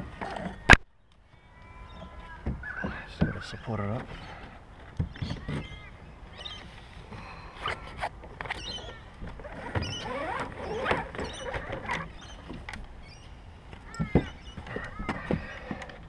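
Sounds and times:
plastic kayak hull squeaking: 0.0s - 0.8s, 7.6s - 16.0s.

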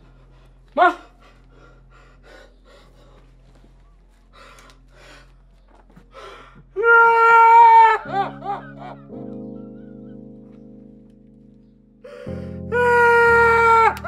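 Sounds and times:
man sobbing: 6.8s - 10.3s, 12.1s - 14.0s.

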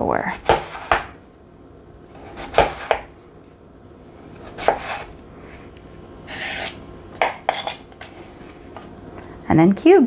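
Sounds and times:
knife chopping on cutting board: 0.3s - 1.2s, 2.2s - 3.1s, 4.4s - 5.1s
knife scraping: 4.4s - 5.7s, 6.3s - 8.6s.

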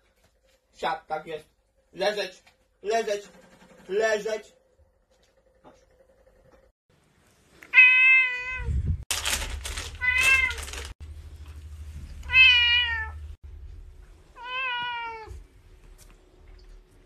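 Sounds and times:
cat meowing: 7.7s - 8.7s, 10.0s - 10.8s, 12.2s - 13.3s, 14.4s - 15.4s
rustling: 9.1s - 12.6s.

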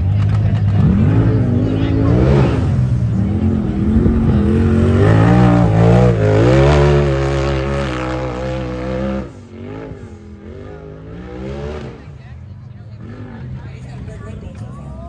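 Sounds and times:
engine revving hard: 0.7s - 12.2s.

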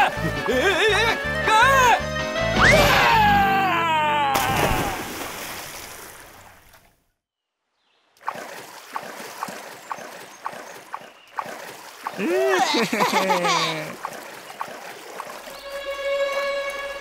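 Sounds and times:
cartoon splash into water: 4.3s - 6.1s
oars striking water: 4.3s - 6.9s, 8.2s - 17.0s
running water: 8.2s - 17.0s.

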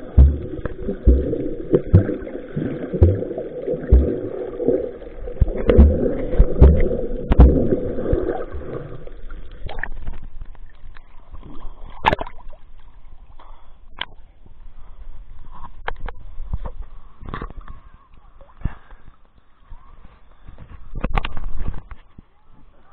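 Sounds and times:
low underwater thuds: 0.0s - 10.7s
water splashing and sloshing: 0.0s - 13.4s
muffled underwater noise: 13.4s - 22.9s.

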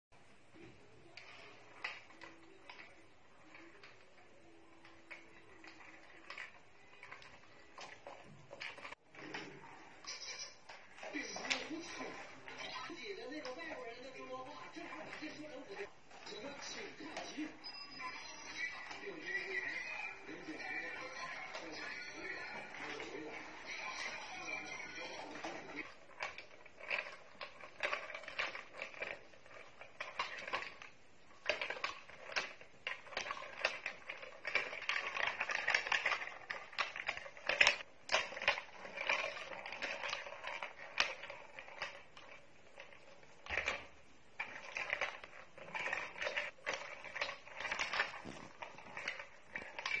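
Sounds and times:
plastic toy rattling on tile floor: 0.6s - 50.0s.

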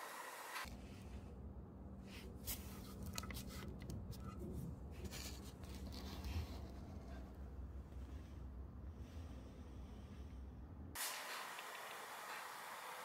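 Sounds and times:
steady low hum: 0.6s - 11.0s.

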